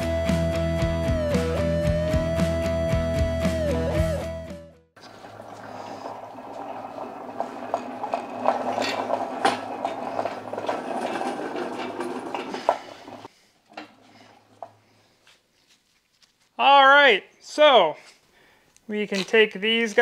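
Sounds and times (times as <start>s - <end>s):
engine stand rolling on concrete: 5.0s - 15.4s.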